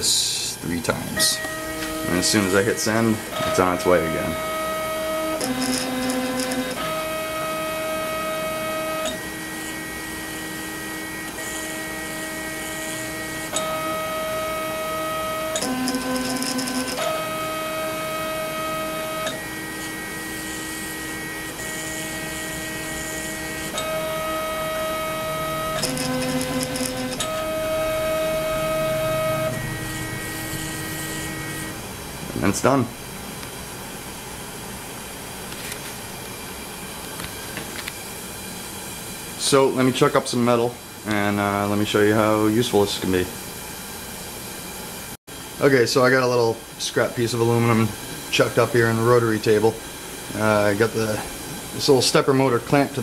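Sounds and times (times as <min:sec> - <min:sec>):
stepper motors whining: 0:00.9 - 0:31.9.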